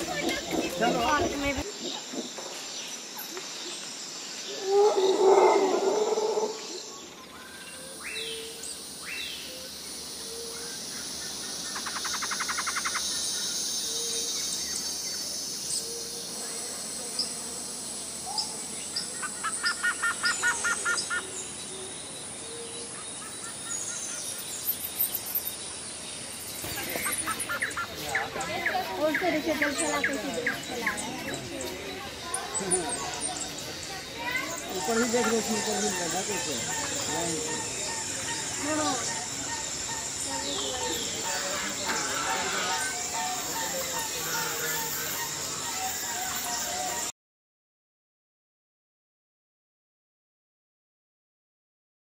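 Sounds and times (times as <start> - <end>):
birds calling and chirping: 0.0 - 47.1
steady background hiss: 0.0 - 47.1
rapid bird trills: 10.3 - 15.0.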